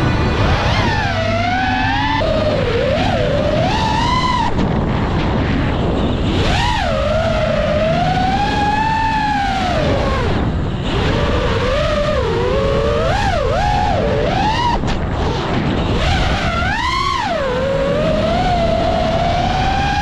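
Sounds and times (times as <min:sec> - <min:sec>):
drone motors whining: 0:00.0 - 0:20.0
wind rush on microphone: 0:00.0 - 0:20.0.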